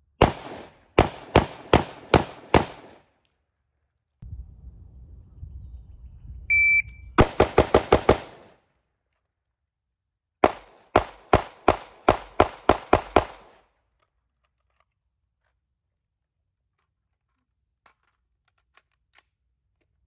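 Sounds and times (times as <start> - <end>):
pistol shots: 0.2 - 3.1, 7.2 - 8.6, 10.4 - 13.6
rifle shots: 0.2 - 3.1, 7.2 - 8.6, 10.4 - 13.7
shot timer beep: 6.5 - 7.2.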